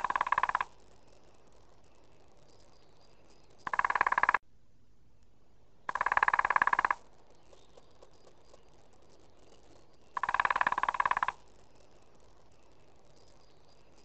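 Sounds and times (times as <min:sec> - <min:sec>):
woodpecker drumming on tree: 0:00.0 - 0:04.4, 0:05.9 - 0:14.0
faint ticks: 0:05.9 - 0:14.0.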